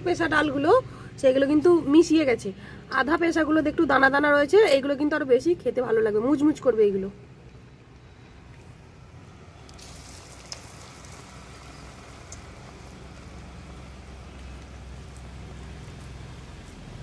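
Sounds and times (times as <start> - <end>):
fritters sizzling in oil: 8.6 - 17.0.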